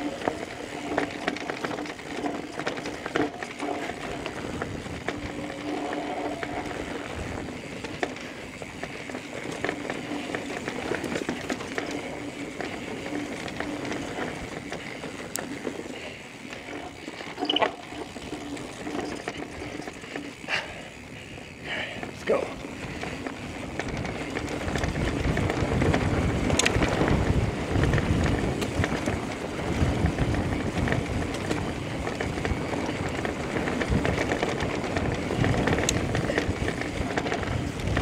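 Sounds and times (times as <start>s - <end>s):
bike clicks and rattles: 0.0s - 38.0s
tyres on dirt trail: 0.0s - 38.0s.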